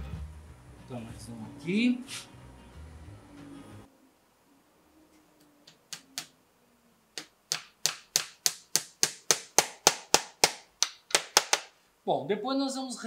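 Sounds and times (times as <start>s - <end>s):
small hammer tapping: 7.2s - 10.0s.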